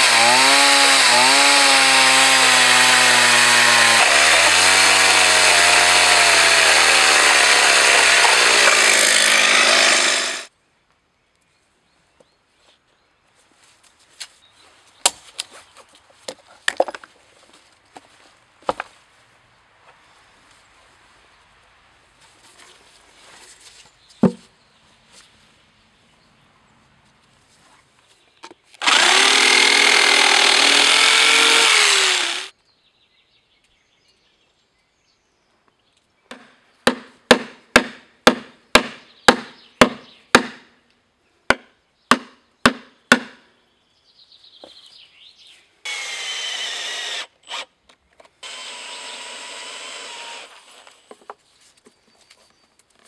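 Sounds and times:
electric power tool running: 0.0 - 10.5, 28.8 - 32.5, 45.9 - 47.6, 48.4 - 50.6.

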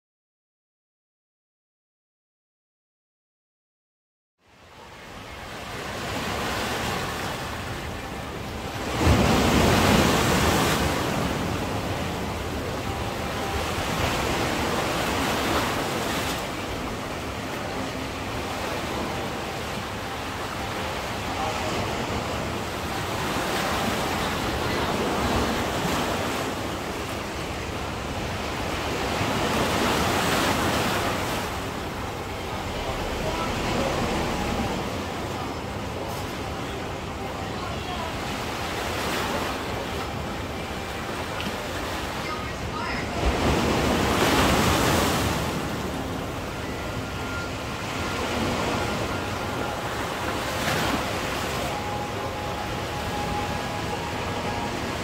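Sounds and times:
sea waves breaking on shore: 4.6 - 55.0.

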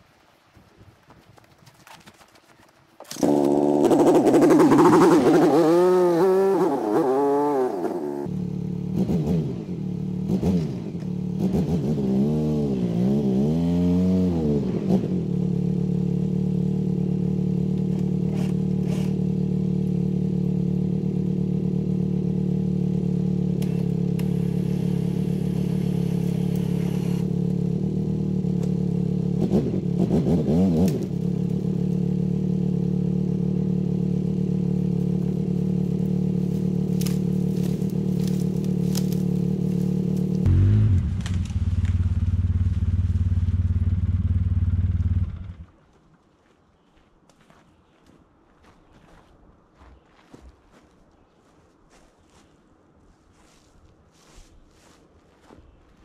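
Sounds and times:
atv engine revving and idling: 3.0 - 45.8.

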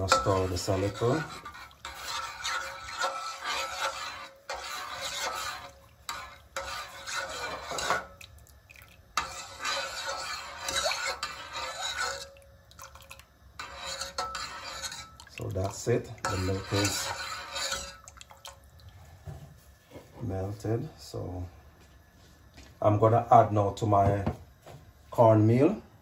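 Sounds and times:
metal spoon stirring in a pot: 0.0 - 18.7.

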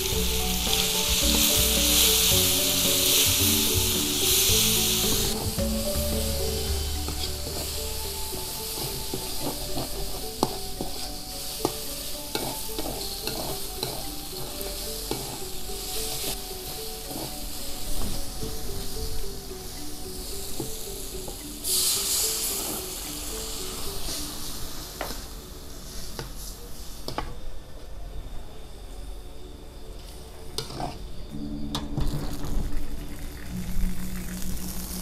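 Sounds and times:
metal spatula scraping wok: 0.0 - 25.3, 30.6 - 33.0
paste sizzling in hot oil: 0.0 - 26.4, 32.0 - 35.0.

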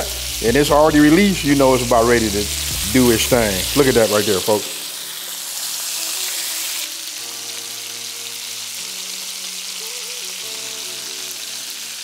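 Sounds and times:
meat sizzling in oil: 0.0 - 12.0.

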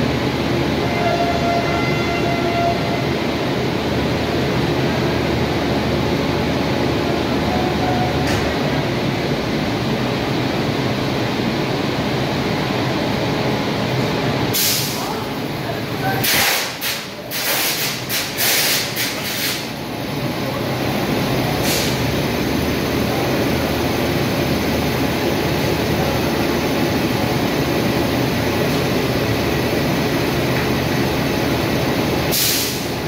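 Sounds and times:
train wheels rumbling on rails: 0.0 - 33.0
air hiss: 14.5 - 15.1, 16.2 - 19.7, 21.6 - 22.1, 32.3 - 33.0.

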